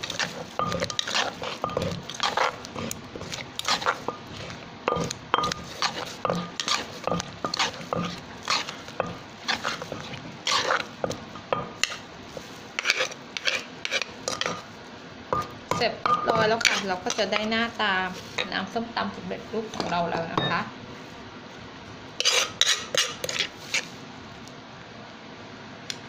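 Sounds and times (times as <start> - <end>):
pestle pounding in mortar: 0.0 - 12.0, 15.4 - 17.4
spoon scraping in mortar: 0.0 - 14.7, 15.4 - 18.7, 22.2 - 24.0.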